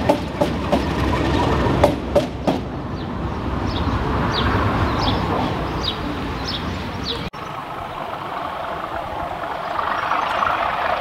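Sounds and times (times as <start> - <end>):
train wheels clicking over rail joints: 0.0 - 2.8
train rumble: 0.0 - 11.0.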